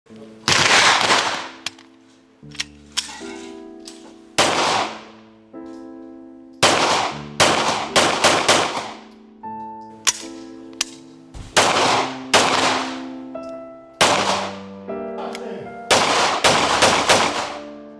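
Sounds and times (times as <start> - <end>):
background music: 0.1 - 17.9
pistol shots with ringing echo: 0.5 - 1.6, 4.4 - 5.2, 6.6 - 9.1, 11.6 - 13.0, 14.0 - 14.6, 15.9 - 17.6.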